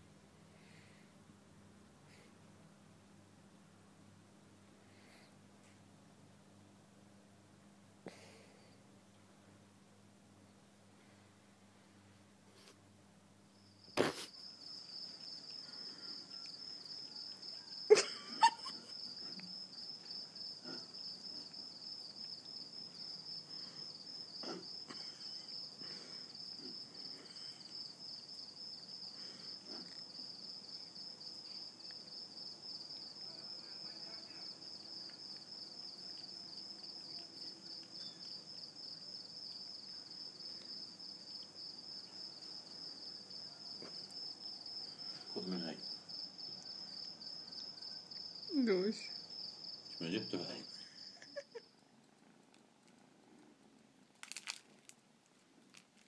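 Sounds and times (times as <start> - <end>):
crickets chirring: 13.5 - 51.9.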